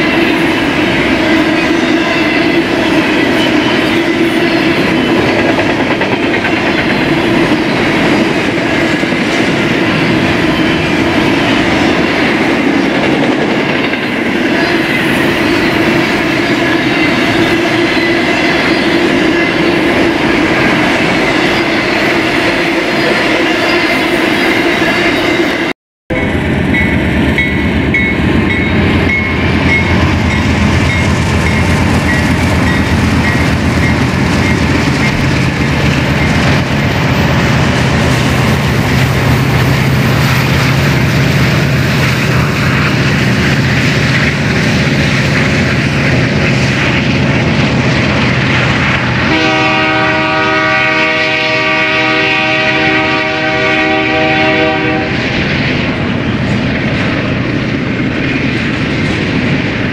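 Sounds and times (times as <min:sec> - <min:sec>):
freight train rumbling past: 0:00.0 - 0:59.9
locomotive air horn: 0:49.2 - 0:55.3.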